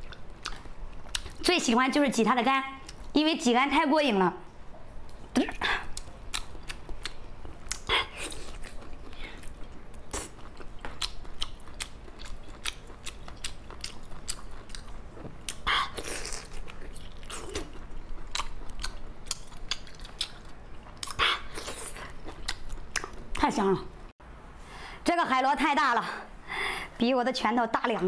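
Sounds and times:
person chewing food: 0.0s - 1.4s, 5.1s - 23.4s.

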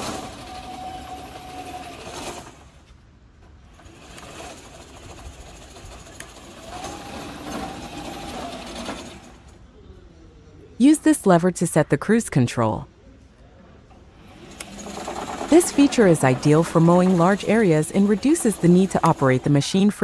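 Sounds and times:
electric motor whine: 0.0s - 2.6s, 6.2s - 9.5s.

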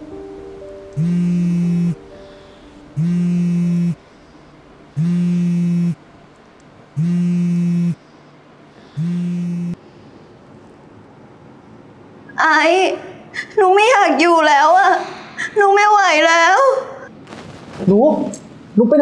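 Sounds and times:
phone vibrating buzzes: 1.0s - 2.1s, 3.0s - 4.0s, 4.9s - 6.0s, 7.0s - 8.1s, 8.8s - 9.8s.

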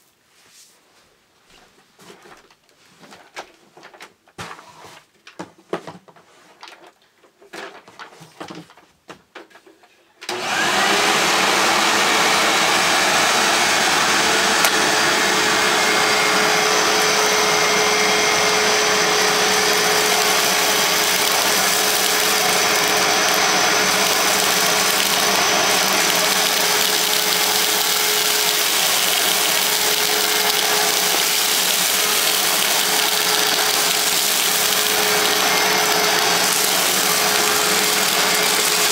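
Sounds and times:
high vacuum whistle: 10.3s - 38.9s
upright vacuum cleaner running: 10.3s - 38.9s.

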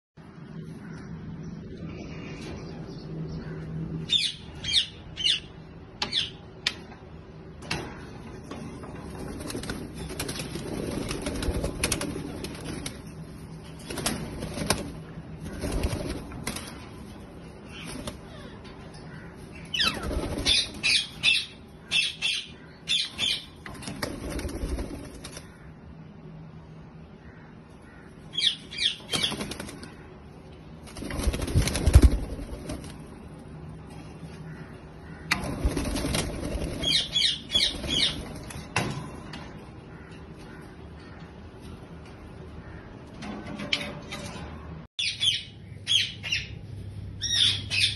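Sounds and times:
parakeets flapping wings: 8.4s - 18.6s, 19.7s - 21.5s, 23.1s - 25.7s, 28.5s - 30.1s, 30.7s - 39.0s
parakeets shrill calls: 19.4s - 23.6s, 27.9s - 29.6s, 35.1s - 38.6s, 47.2s - 47.9s.

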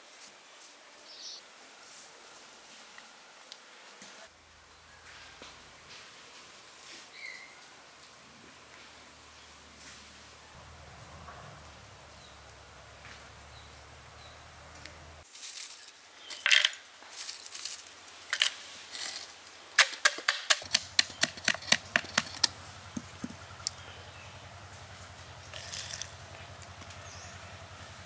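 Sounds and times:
stick pounding charcoal in bamboo: 19.8s - 23.5s.

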